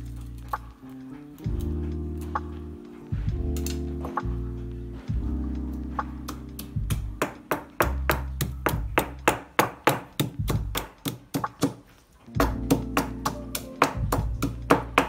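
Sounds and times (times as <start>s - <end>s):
background music: 0.0s - 15.0s
stone pestle pounding in mortar: 7.2s - 11.8s.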